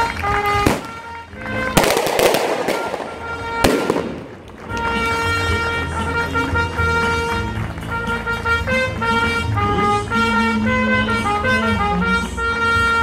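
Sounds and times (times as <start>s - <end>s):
fireworks crackling: 0.0s - 8.0s
fireworks banging: 0.0s - 8.6s
music with held notes: 0.0s - 13.0s.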